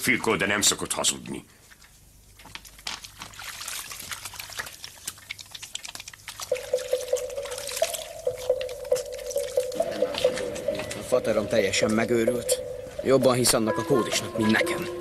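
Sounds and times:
liquid trickling and splashing: 2.8 - 13.1
steady held tone: 6.5 - 15.0.

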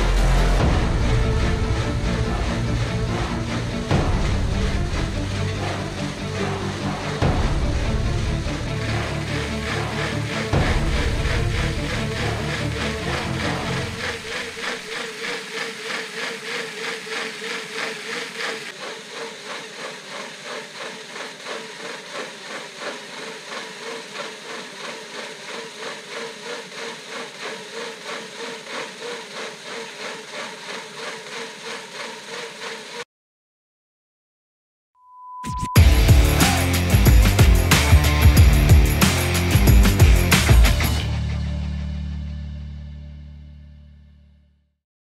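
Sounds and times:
bass-heavy music: 0.0 - 14.6, 35.5 - 44.5
bicycle wheel whirring on rollers: 0.0 - 33.0.

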